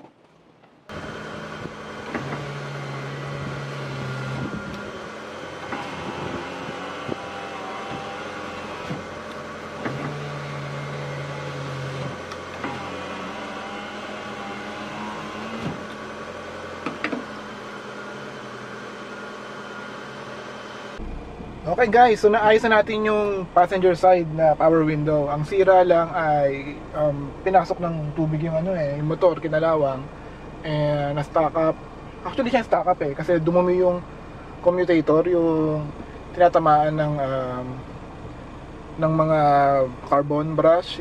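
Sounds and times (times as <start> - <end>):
power window motor running: 0.9 - 21.6
steady hum: 0.9 - 40.1.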